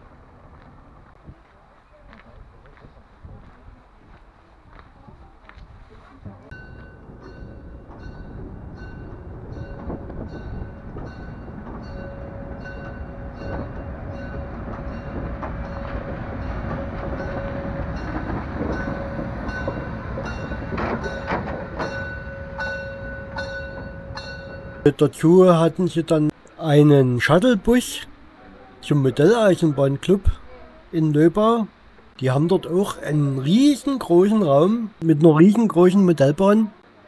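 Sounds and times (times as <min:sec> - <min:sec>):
steam locomotive rumbling past: 0:06.3 - 0:26.1.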